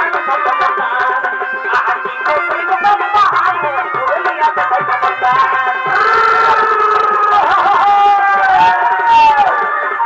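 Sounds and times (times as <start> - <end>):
drums beating quick strokes: 1.1 - 9.7.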